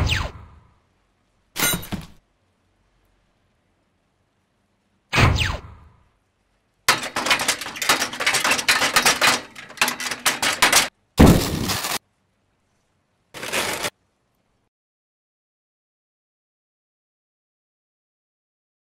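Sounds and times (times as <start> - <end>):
cartoon cracking and crashing: 6.9 - 12.0
heavy cartoon crash: 6.9 - 12.0.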